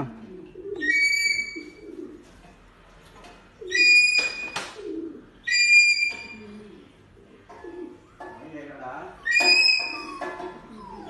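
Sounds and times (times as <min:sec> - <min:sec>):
pigeons cooing: 0:00.0 - 0:02.8, 0:03.4 - 0:08.4, 0:09.0 - 0:11.0
high-pitched bird calls: 0:00.8 - 0:01.8, 0:03.7 - 0:04.6, 0:05.4 - 0:06.6, 0:09.2 - 0:11.0.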